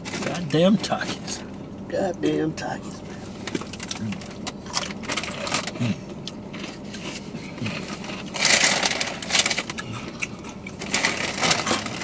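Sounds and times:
foil chip bags crinkling: 0:03.4 - 0:05.8, 0:07.7 - 0:12.0.

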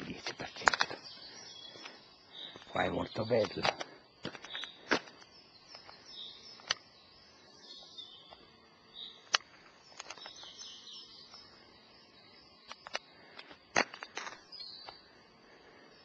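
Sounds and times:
faint high insect-like hiss: 0:00.0 - 0:16.0
small birds chirping and singing: 0:00.0 - 0:16.0
sharp clicks: 0:06.6 - 0:06.8, 0:12.6 - 0:15.0.

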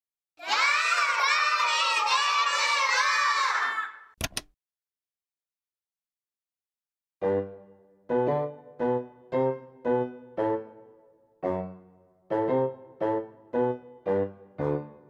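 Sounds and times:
children shouting and cheering: 0:00.4 - 0:04.2.

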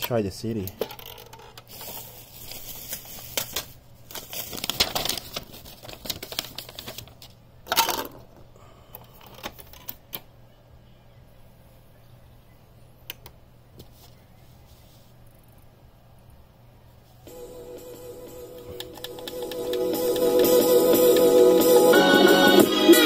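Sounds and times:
plastic clicks and clatter: 0:00.0 - 0:02.0, 0:04.7 - 0:10.3.

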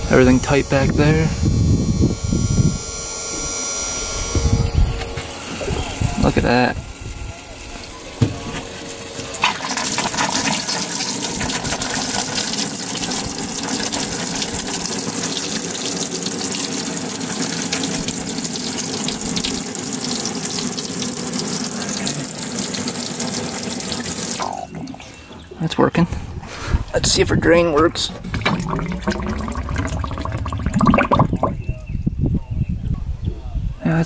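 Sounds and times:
pump spraying water jets: 0:05.0 - 0:25.6, 0:27.8 - 0:31.6.

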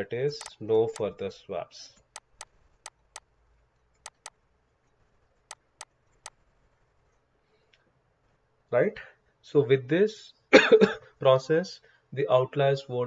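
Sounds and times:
pen clicks on drawing screen: 0:04.0 - 0:04.4.

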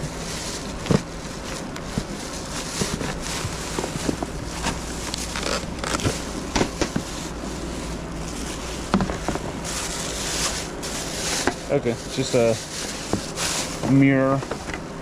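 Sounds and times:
plastic sheeting crinkling: 0:00.0 - 0:14.8
things knocking in plastic tote: 0:01.8 - 0:07.1, 0:08.9 - 0:09.6.

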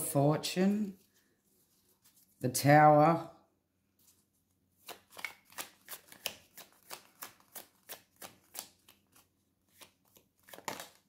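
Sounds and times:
cards being shuffled: 0:04.0 - 0:11.0.

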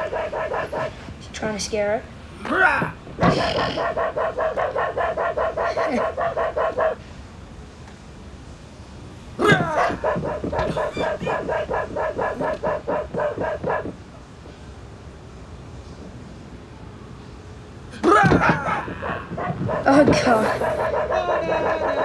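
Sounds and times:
small dog yapping: 0:00.0 - 0:01.0, 0:02.8 - 0:07.0, 0:09.4 - 0:14.0, 0:18.1 - 0:22.0.

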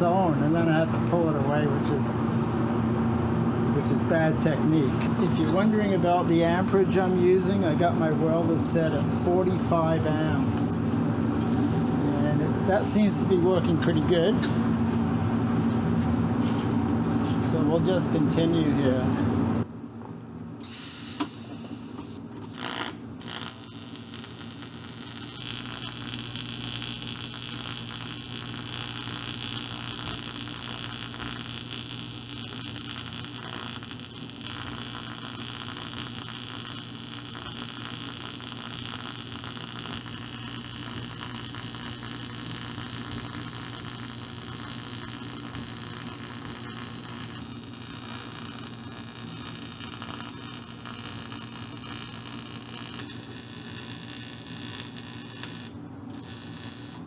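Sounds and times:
welding arc buzzing with hiss: 0:08.6 - 0:14.0, 0:20.6 - 0:57.0.

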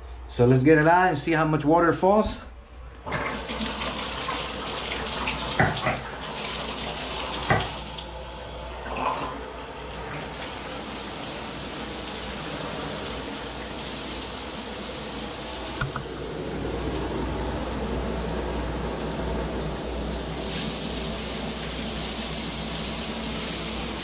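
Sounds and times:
shower water hissing on tiles: 0:03.1 - 0:08.0, 0:10.0 - 0:16.0, 0:19.4 - 0:24.0.

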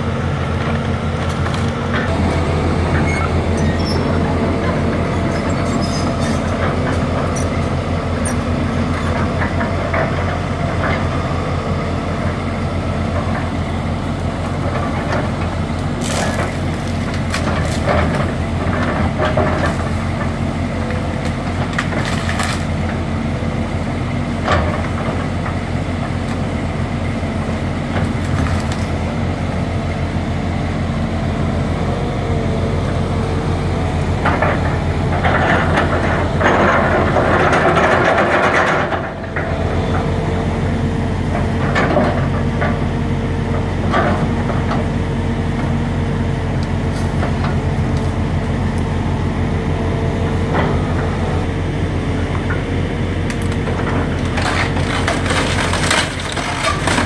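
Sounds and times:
excavator diesel engine running: 0:00.0 - 0:57.0
shrubs and debris cracking: 0:14.4 - 0:23.0, 0:27.9 - 0:29.2, 0:53.2 - 0:57.0.

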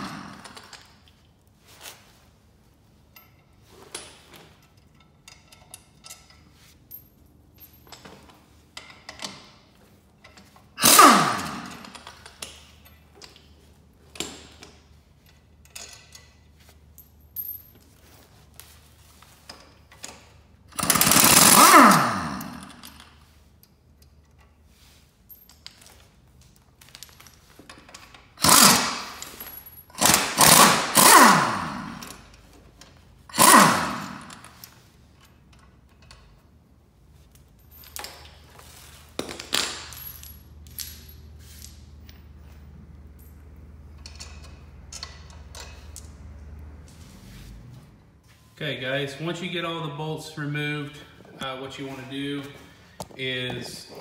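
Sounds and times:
air impact wrench bursts: 0:00.0 - 0:00.7, 0:10.8 - 0:12.2, 0:20.7 - 0:23.0, 0:28.4 - 0:32.3, 0:33.2 - 0:34.9.

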